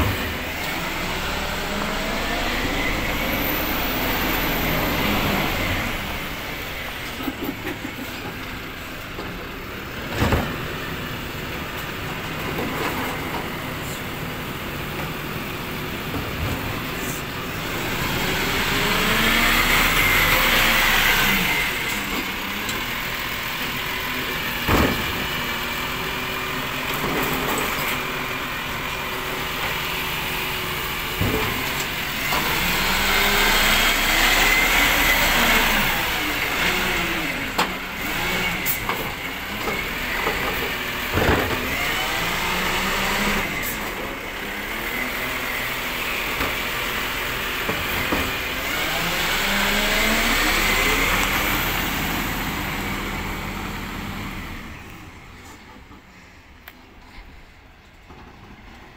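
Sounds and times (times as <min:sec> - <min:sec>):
hydraulic arm whining: 0:00.0 - 0:14.6
truck engine revving: 0:00.0 - 0:55.9.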